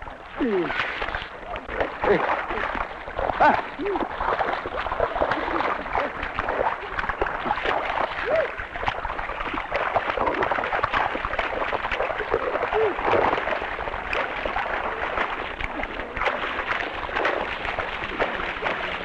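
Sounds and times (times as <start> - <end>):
mud and water sloshing: 0.0 - 19.0
people calling out: 3.4 - 4.1, 8.2 - 8.6, 12.7 - 13.1.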